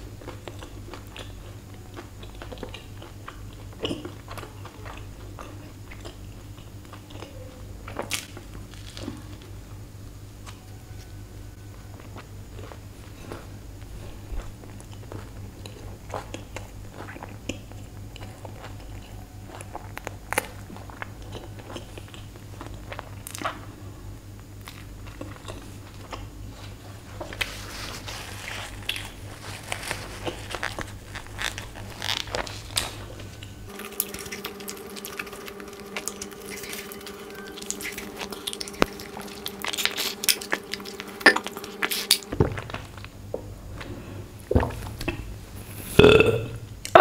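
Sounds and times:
steady low hum: 0.0 - 47.0
wet mouth chewing clicks: 33.7 - 42.3.

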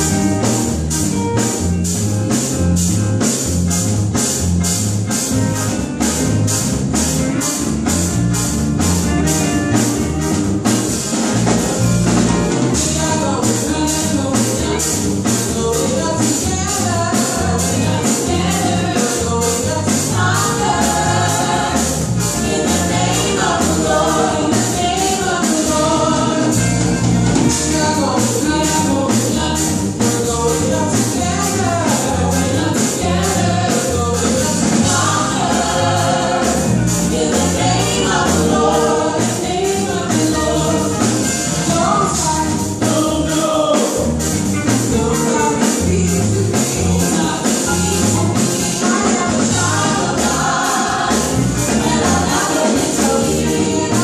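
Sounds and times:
band playing with bass: 0.0 - 54.0
woman singing lead vocal: 12.8 - 21.8, 27.6 - 41.1, 41.7 - 44.0, 44.9 - 47.8, 48.7 - 54.0
backing choir: 17.1 - 42.2, 46.6 - 54.0.

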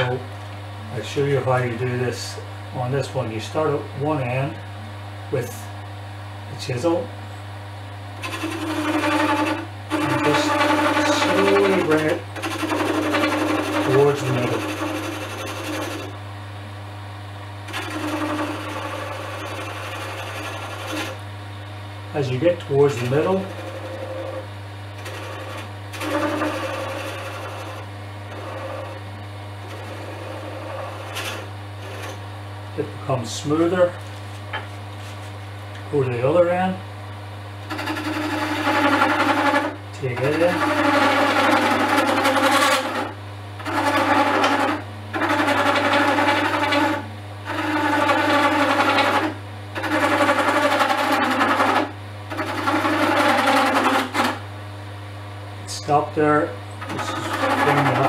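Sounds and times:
chisel scraping spinning wood: 8.2 - 16.2, 17.6 - 21.2, 22.2 - 35.3, 37.7 - 54.5, 55.7 - 58.0
wood lathe humming: 8.2 - 16.2, 17.6 - 21.3, 22.1 - 35.1, 37.7 - 54.5, 55.7 - 58.0.

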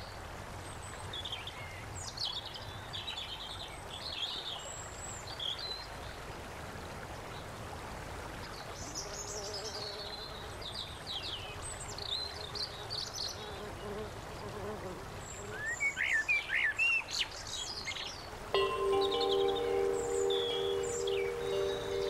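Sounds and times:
outdoor background hiss: 0.0 - 22.0
songbirds chirping: 8.5 - 22.0
faint low steady tone: 18.6 - 22.0.

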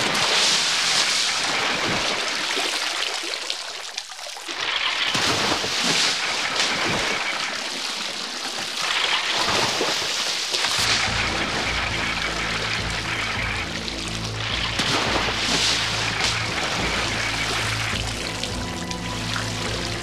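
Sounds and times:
water splashing into a barrel: 0.0 - 20.0
body dripping water: 10.6 - 20.0.

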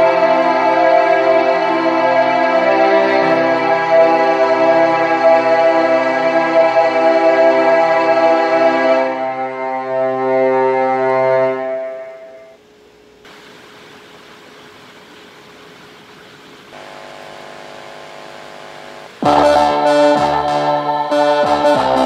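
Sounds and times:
music chord through car speakers: 0.0 - 22.0
faint hiss: 11.7 - 19.2.

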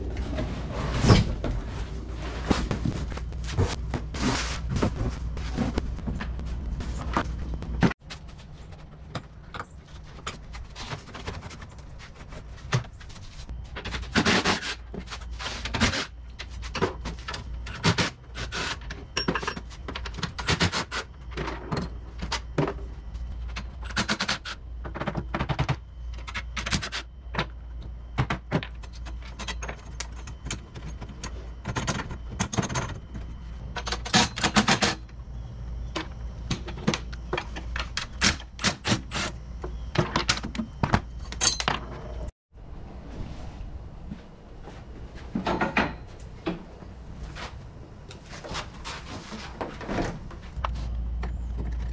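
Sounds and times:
low hum: 0.0 - 14.1
parts and tools clicking and rattling: 1.0 - 35.2, 35.8 - 42.3.

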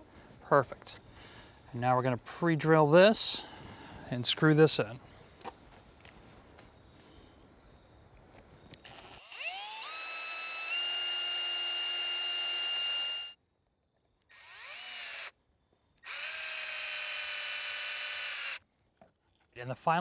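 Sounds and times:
cordless drill whining: 8.8 - 13.4, 14.3 - 15.4, 16.0 - 18.6.

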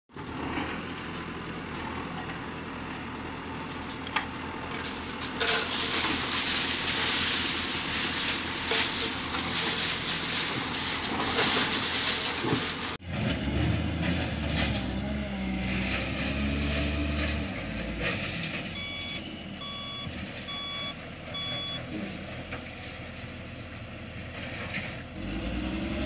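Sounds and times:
another engine: 0.1 - 26.0
diesel engine running: 0.1 - 26.0
concrete rubble crackling: 0.4 - 19.2, 19.8 - 26.0.

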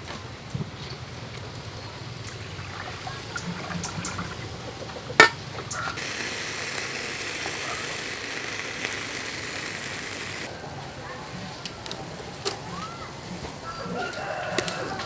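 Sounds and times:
meat sizzling on a grill: 5.7 - 15.0.

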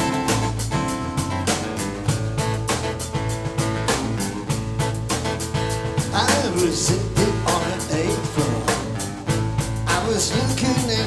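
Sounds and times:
acoustic bass guitar: 0.0 - 11.0
drum kit beat: 0.0 - 11.0
person singing: 6.1 - 9.0, 9.9 - 11.0.

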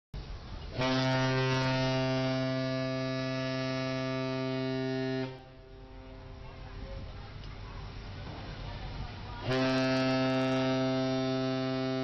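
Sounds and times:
ship's horn low blast: 0.7 - 6.5, 9.4 - 12.0.

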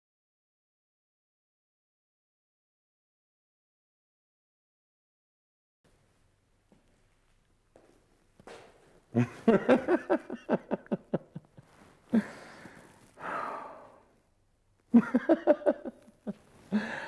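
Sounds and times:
man laughing: 9.2 - 12.4, 14.9 - 17.0
man sighing: 12.1 - 14.1, 16.7 - 17.0.

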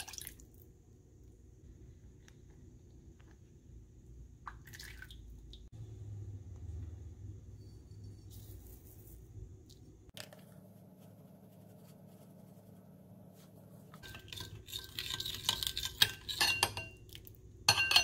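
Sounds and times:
metal spoon clinking in glass bowl: 14.0 - 17.1, 17.7 - 18.0.

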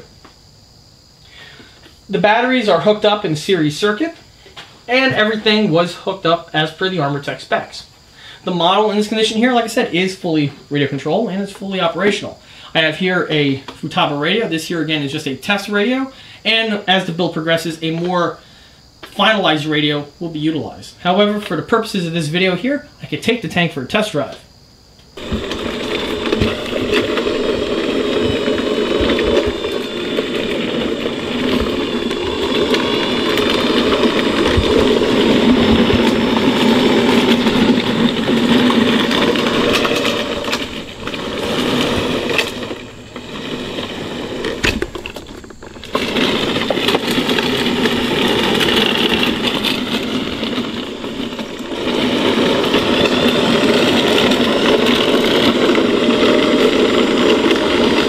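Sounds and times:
electric motors and gearing whirring: 25.0 - 58.0
metal tracks clattering: 25.2 - 58.0.

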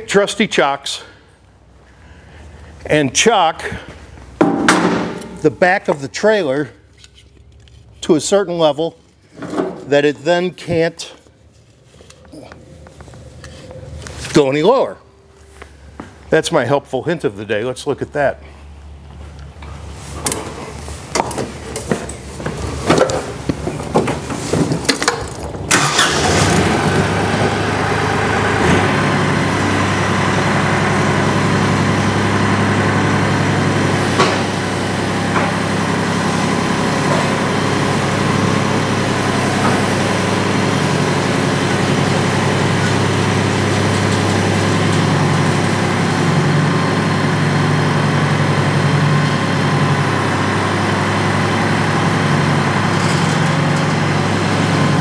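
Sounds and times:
tractor diesel engine running: 4.0 - 6.4, 19.8 - 55.0.

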